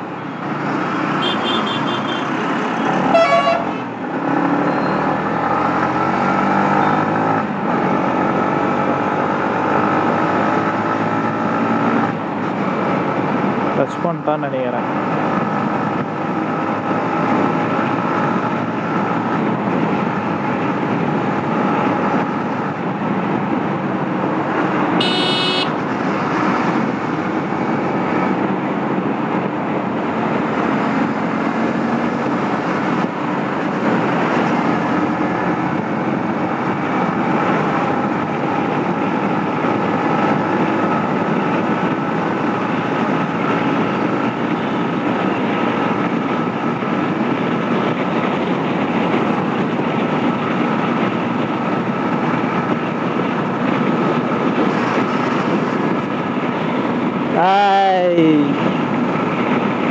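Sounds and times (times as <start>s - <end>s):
wind and road noise: 0.0s - 59.9s
vehicle horn toot: 1.2s - 2.2s, 3.1s - 3.8s, 25.0s - 25.8s.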